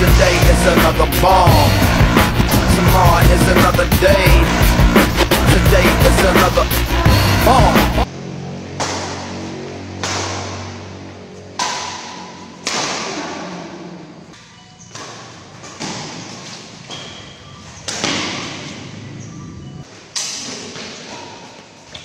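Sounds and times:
rackets striking shuttlecock: 8.7 - 17.2.

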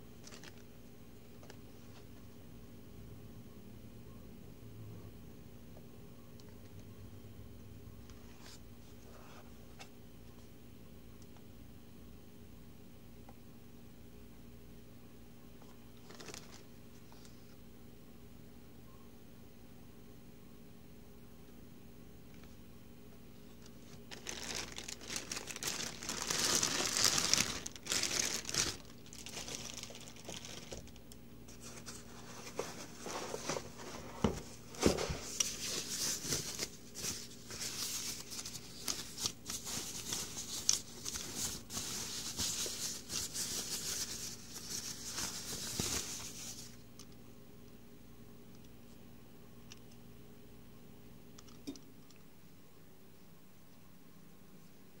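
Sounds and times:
plastic packaging crinkling: 0.2 - 0.7, 16.0 - 16.7, 23.6 - 46.8.

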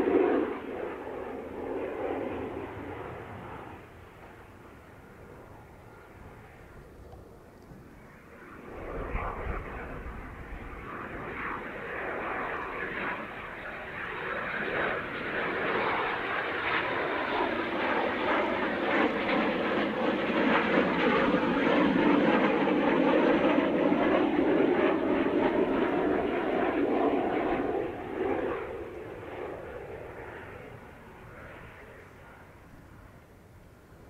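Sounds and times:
jet engine whine: 0.0 - 34.0.

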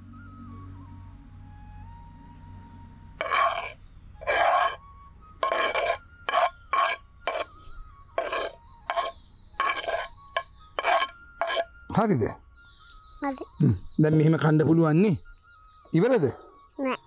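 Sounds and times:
utensil scraping clay cookware: 3.2 - 4.8, 5.4 - 11.8.

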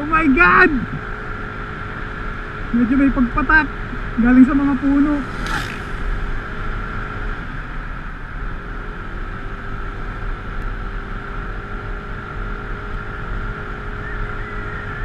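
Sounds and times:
motorcycle engine running: 0.0 - 15.0
wind rushing: 4.7 - 7.8.

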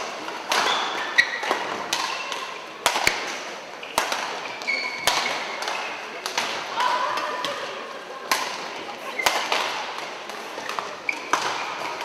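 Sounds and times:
rackets striking shuttlecock: 0.0 - 7.6, 8.2 - 12.0
shoes squeaking on court floor: 0.5 - 2.3, 3.8 - 6.2, 10.4 - 12.0.

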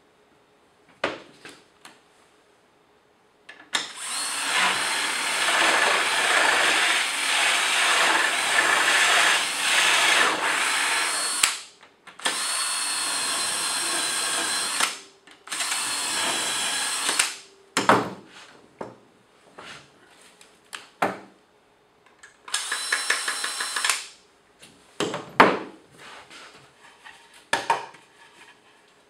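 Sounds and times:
cordless drill boring wood: 3.8 - 11.6, 12.2 - 17.4, 22.5 - 24.0.

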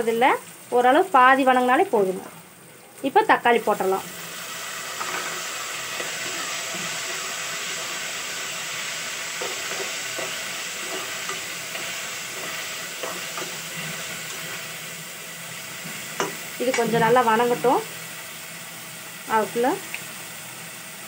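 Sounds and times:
vegetables sizzling in hot oil: 0.0 - 21.0
metal spatula scraping pot: 4.9 - 14.7.

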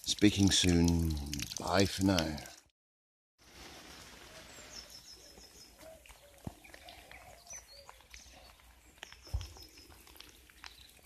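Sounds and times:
birdsong: 3.8 - 11.0
high bird chirps: 4.4 - 10.0.

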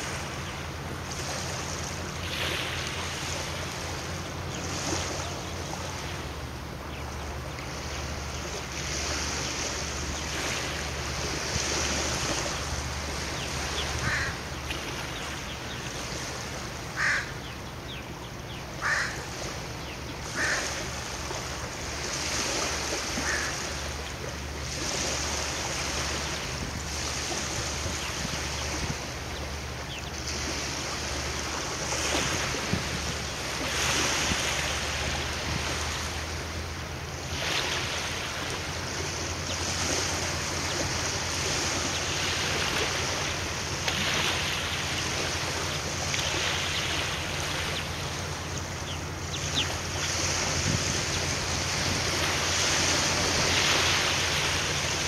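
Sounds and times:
steady low hum: 0.0 - 55.0
wind on microphone: 26.2 - 29.5, 32.1 - 34.6, 49.4 - 53.8.

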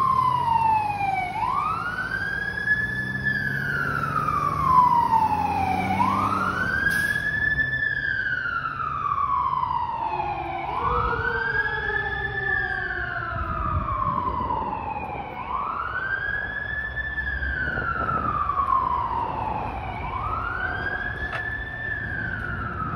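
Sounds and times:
fire engine siren wailing: 0.0 - 22.9
traffic rumble: 0.0 - 22.9.

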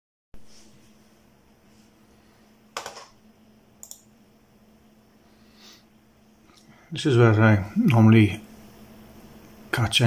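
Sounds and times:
faint steady hum: 0.4 - 10.0
small clicks: 3.8 - 4.1.

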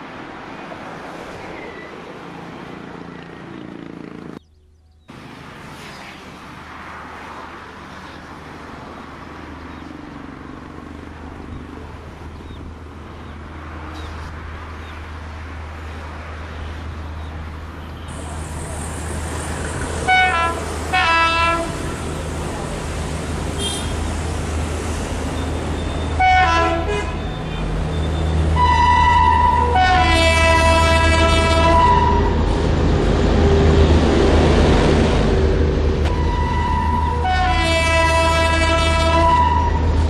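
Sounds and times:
electric train humming: 18.1 - 40.0
locomotive horn: 20.0 - 22.0, 23.6 - 24.1, 25.8 - 32.5, 36.0 - 40.0.

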